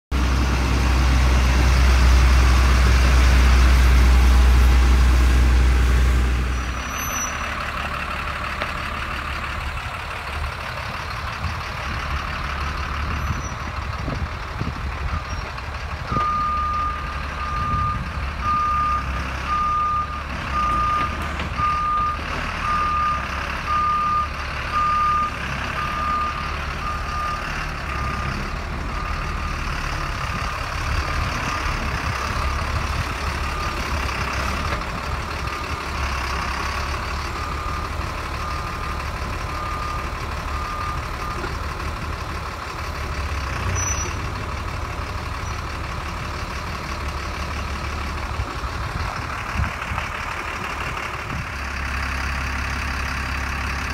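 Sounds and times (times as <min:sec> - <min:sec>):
truck engine rumbling: 0:00.1 - 0:53.9.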